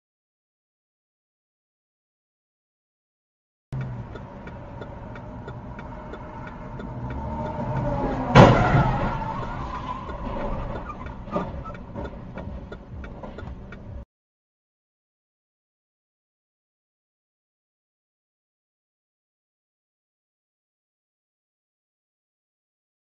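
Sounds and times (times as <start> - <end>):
fast regular ticking: 3.8 - 14.0
truck rumble: 3.8 - 14.0
loud vehicle impact: 5.1 - 13.6.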